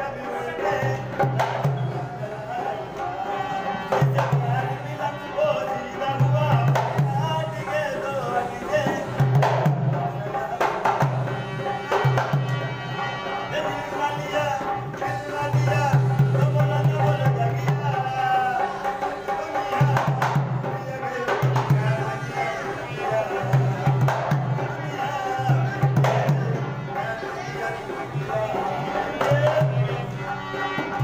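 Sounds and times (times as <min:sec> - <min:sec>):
hand drum rhythm: 0:01.0 - 0:02.5, 0:06.1 - 0:07.6, 0:08.8 - 0:12.6, 0:15.1 - 0:22.2, 0:23.4 - 0:30.1.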